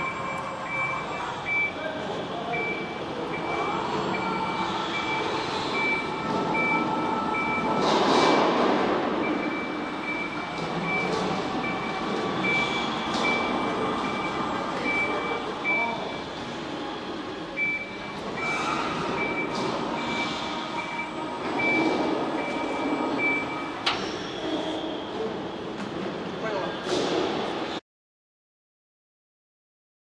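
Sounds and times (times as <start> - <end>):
high warning beeper: 0.0 - 7.8, 9.2 - 16.3, 17.6 - 23.9.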